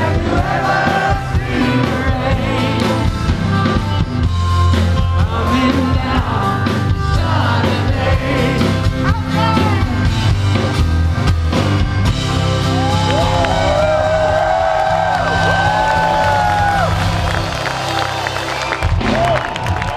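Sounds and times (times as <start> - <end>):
voices singing: 0.0 - 3.3, 5.0 - 9.4
live rock band: 0.0 - 19.9.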